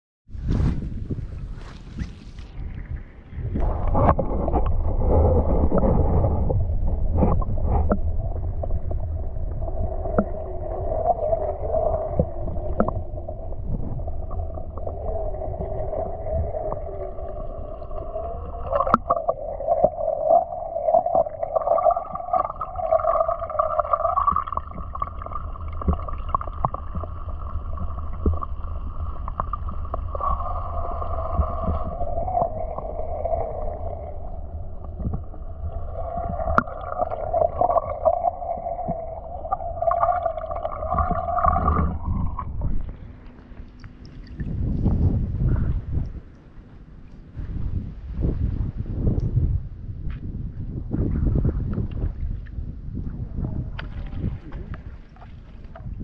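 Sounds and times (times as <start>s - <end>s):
underwater swirling rumble: 0.3s - 56.0s
wavering hum: 3.6s - 47.5s.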